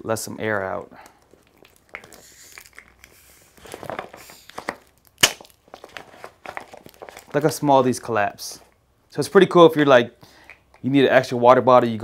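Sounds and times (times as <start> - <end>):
plastic flask crinkling: 0.2 - 8.8.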